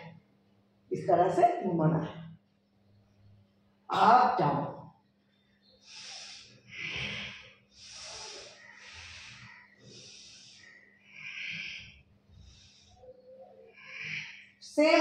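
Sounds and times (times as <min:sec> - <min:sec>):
woman breathing hard: 0:05.8 - 0:13.0.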